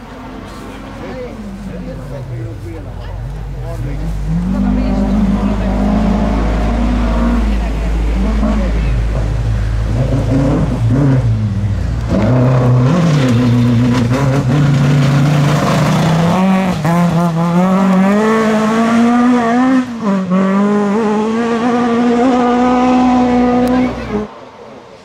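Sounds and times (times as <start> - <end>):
car engine accelerating at full throttle: 0.0 - 24.5.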